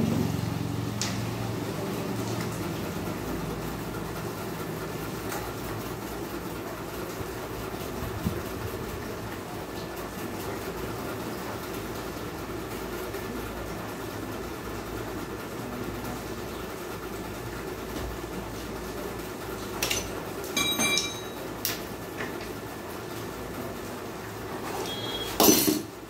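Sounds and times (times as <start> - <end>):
tools clinking on metal: 19.8 - 21.4, 25.4 - 25.9.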